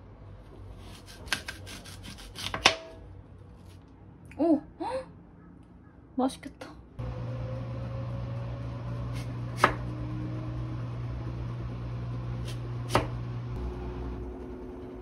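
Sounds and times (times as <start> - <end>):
knife slicing apple: 0.8 - 3.0, 9.1 - 9.9, 12.4 - 13.2
low hum: 7.0 - 15.0.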